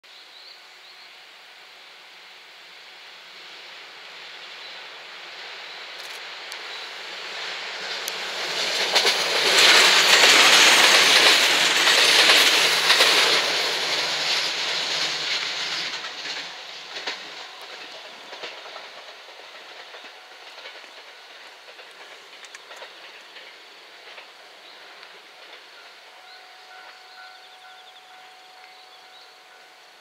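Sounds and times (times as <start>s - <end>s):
electric train passing: 0.2s - 30.0s
wheels clattering over rails: 7.8s - 24.4s.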